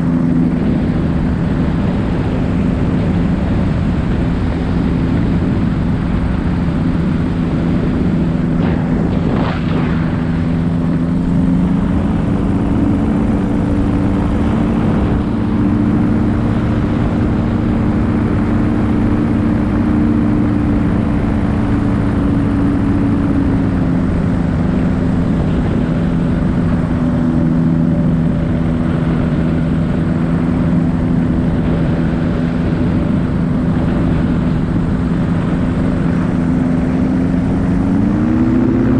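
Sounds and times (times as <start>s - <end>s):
paramotor engine and propeller: 0.0s - 38.9s
wind rushing over microphone: 0.0s - 38.9s.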